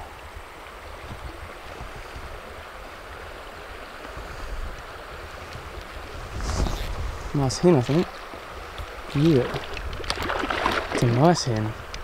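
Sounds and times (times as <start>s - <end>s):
stream running over gravel: 0.0s - 12.0s
wind buffeting microphone: 4.0s - 12.0s.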